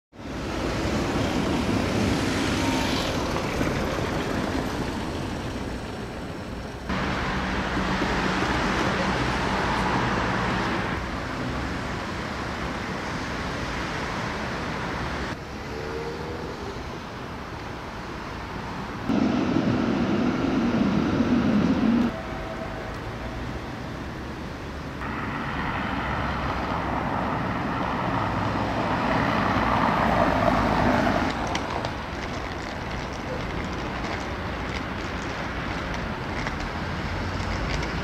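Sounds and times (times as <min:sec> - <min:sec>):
city traffic noise: 0:00.1 - 0:38.0.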